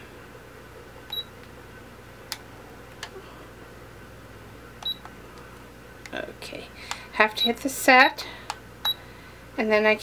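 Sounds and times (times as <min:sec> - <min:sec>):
alarm clock button beeps: 0:04.8 - 0:05.1.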